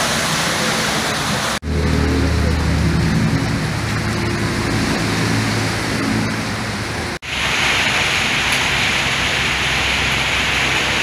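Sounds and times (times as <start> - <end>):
heavy rain and flowing water: 0.0 - 11.0
low hum: 1.6 - 7.2.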